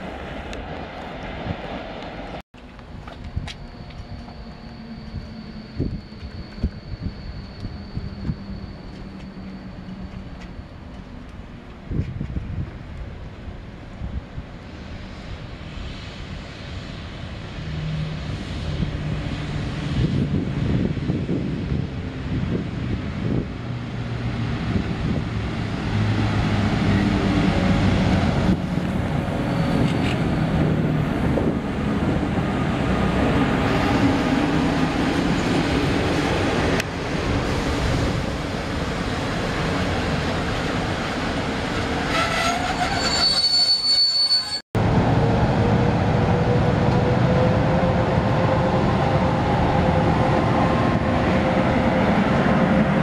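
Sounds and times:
train rolling noise: 0:00.0 - 0:53.0
wheel squeal: 0:03.2 - 0:11.2, 0:29.3 - 0:30.4, 0:42.0 - 0:44.6.

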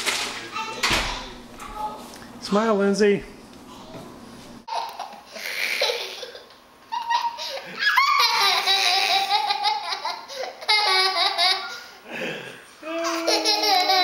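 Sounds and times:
high-pitched laughter and giggling: 0:04.7 - 0:11.8, 0:13.0 - 0:14.0.

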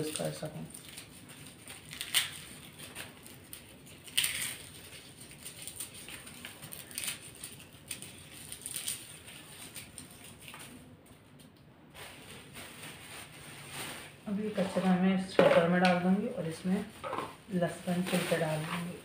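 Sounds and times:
papery garlic skins crackling: 0:00.0 - 0:11.4, 0:16.0 - 0:19.0.

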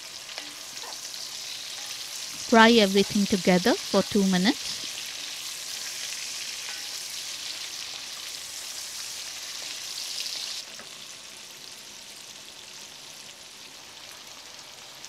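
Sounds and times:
vegetables sizzling in a pot: 0:00.0 - 0:15.0
spatula stirring: 0:04.8 - 0:09.8.

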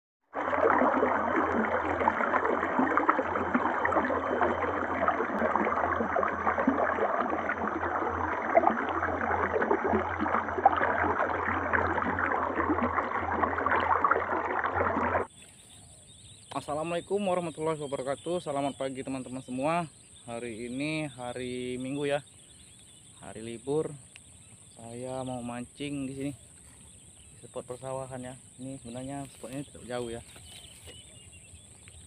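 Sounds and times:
water rushing over rock: 0:00.3 - 0:15.3.

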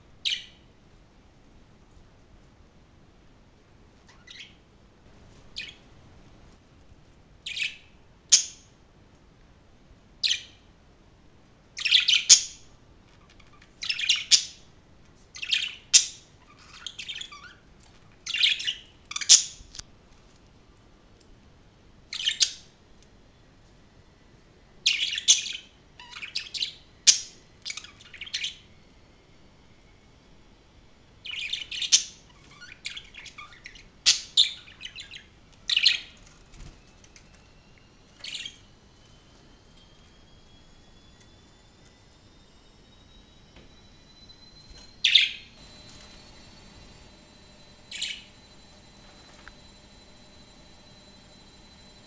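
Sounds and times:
budgerigars chirping: 0:04.1 - 0:04.6, 0:05.6 - 0:05.8, 0:13.4 - 0:14.6, 0:15.4 - 0:17.6, 0:24.9 - 0:28.6, 0:31.3 - 0:36.1, 0:45.0 - 0:51.0.

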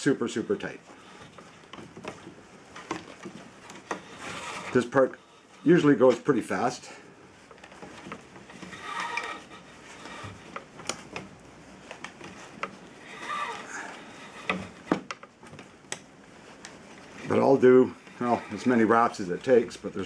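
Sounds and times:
squeaky rubbing of pulled line: 0:00.0 - 0:02.4, 0:03.0 - 0:05.8, 0:07.9 - 0:10.7, 0:12.3 - 0:15.0, 0:17.0 - 0:20.0.

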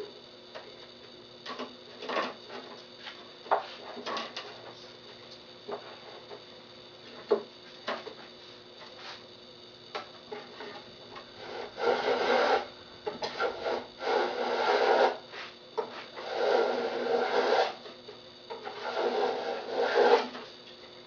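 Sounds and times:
hand plane shaving wood: 0:11.4 - 0:12.7, 0:13.3 - 0:15.2, 0:16.2 - 0:17.8, 0:18.6 - 0:20.4.

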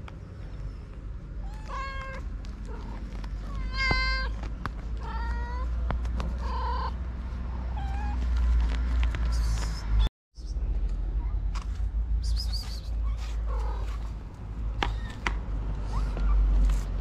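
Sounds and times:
kittens meowing: 0:01.4 - 0:07.0, 0:07.7 - 0:08.4, 0:12.9 - 0:16.9.

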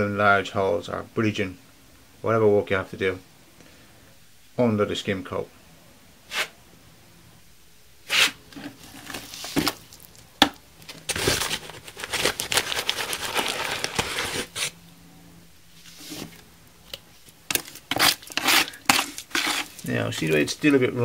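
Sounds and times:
paper sack crinkling: 0:08.5 - 0:14.8, 0:17.2 - 0:20.8
scoop scraping: 0:17.5 - 0:20.8
powder pouring: 0:17.8 - 0:20.8.

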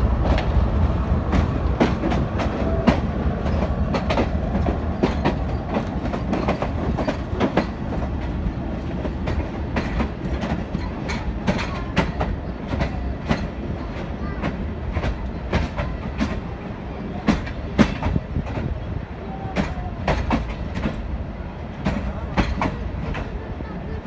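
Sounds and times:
steady low rumble: 0:00.0 - 0:05.0
train wheels clattering over rail joints: 0:01.2 - 0:16.5, 0:17.2 - 0:18.8, 0:19.6 - 0:21.2, 0:21.8 - 0:23.5.

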